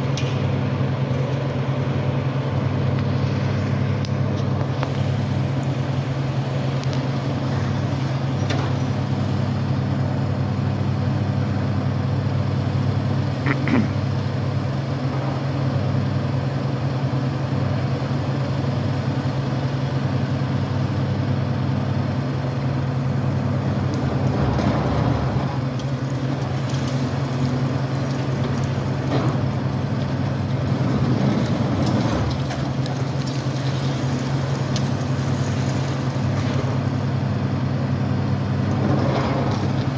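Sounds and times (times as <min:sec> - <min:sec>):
diesel engine running: 0:00.0 - 0:39.9
crunching and falling rubble: 0:23.6 - 0:37.3, 0:38.6 - 0:39.9.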